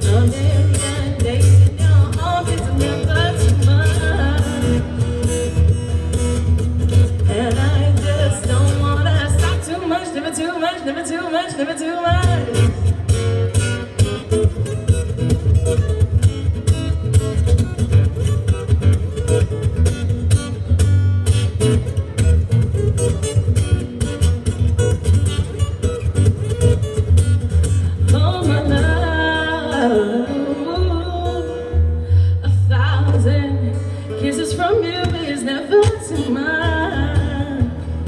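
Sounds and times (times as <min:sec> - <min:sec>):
woman singing: 0:00.0 - 0:05.2, 0:07.1 - 0:13.1, 0:27.9 - 0:38.0
acoustic guitar strumming: 0:00.0 - 0:38.0.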